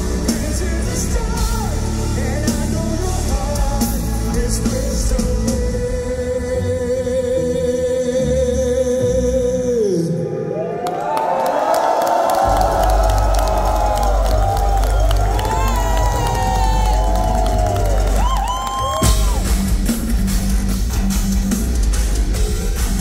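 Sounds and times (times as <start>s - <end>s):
metal band playing: 0.0s - 7.4s, 12.5s - 23.0s.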